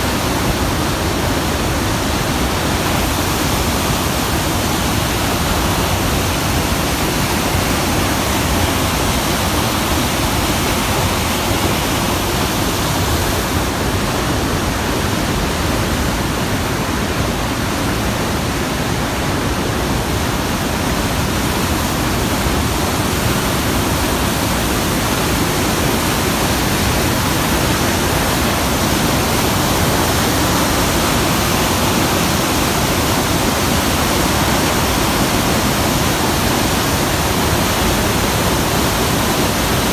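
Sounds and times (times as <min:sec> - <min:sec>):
whitewater roaring: 0:00.0 - 0:39.9.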